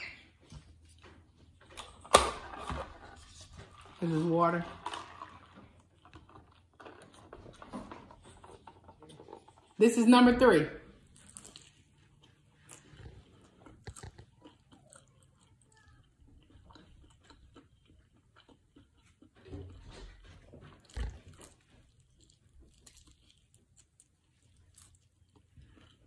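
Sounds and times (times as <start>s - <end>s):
wet chewing clicks: 11.1s - 19.7s, 20.7s - 26.0s
crunching fried chicken: 11.1s - 26.0s.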